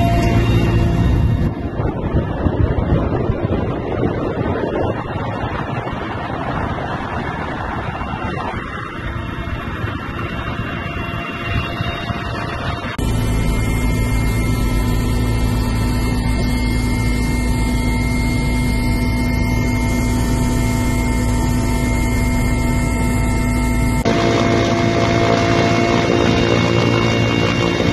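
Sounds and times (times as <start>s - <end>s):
turbine and gearbox drone: 0.0s - 4.4s, 8.2s - 27.9s
wind rushing over microphone: 0.0s - 13.3s
helicopter rotor and engine: 0.0s - 27.9s.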